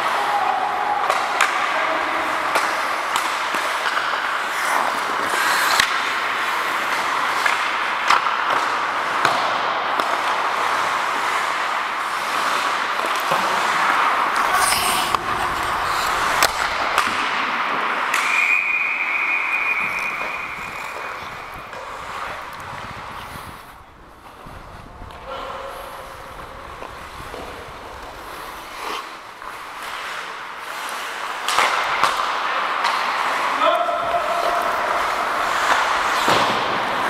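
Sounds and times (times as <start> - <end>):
hockey sticks and puck clacking: 0.0 - 37.0
skate blades scraping ice: 0.0 - 37.0
steady high whistle: 18.1 - 21.8.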